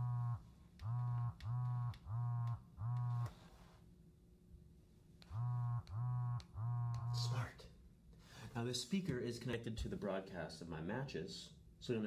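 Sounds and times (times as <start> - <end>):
buzzer short buzzes: 0.0 - 3.3, 5.3 - 7.2.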